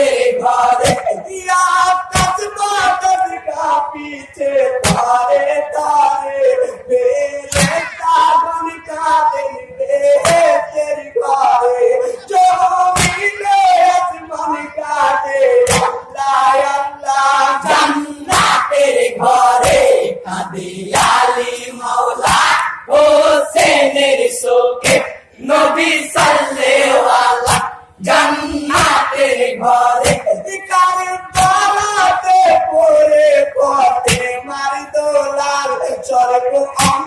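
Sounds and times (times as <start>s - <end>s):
men singing a lament: 0.0s - 37.0s
rhythmic hand strikes: 0.4s - 1.3s, 4.8s - 5.3s, 7.5s - 8.0s, 15.6s - 16.2s, 17.9s - 22.9s, 24.8s - 25.2s, 26.0s - 30.5s, 33.9s - 34.5s.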